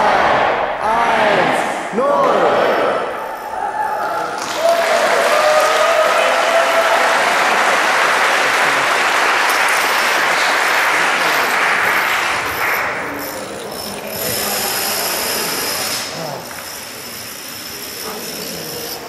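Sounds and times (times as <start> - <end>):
audience applauding: 4.0 - 16.8.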